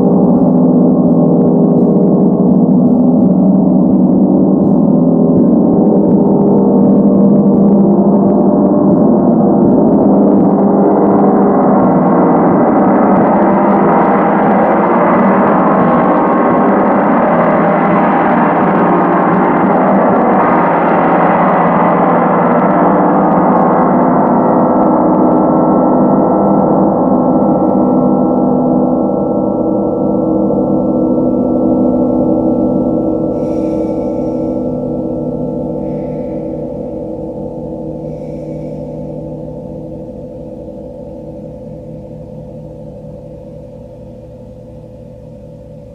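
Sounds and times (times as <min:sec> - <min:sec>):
gong ringing: 0:29.0 - 0:45.9.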